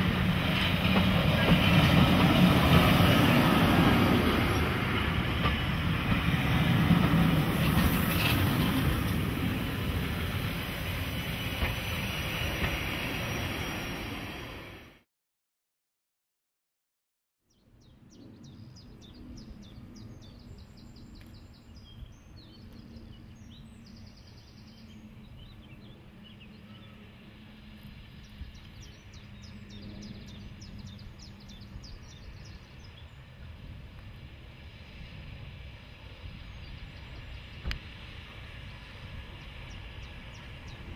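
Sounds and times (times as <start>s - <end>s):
steam train rumble: 0.0s - 15.0s, 23.4s - 40.9s.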